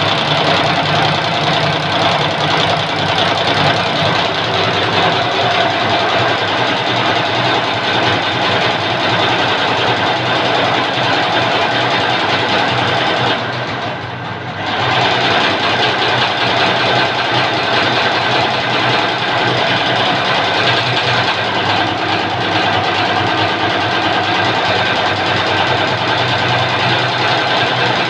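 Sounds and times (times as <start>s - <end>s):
embroidery machine stitching: 0.0s - 28.0s.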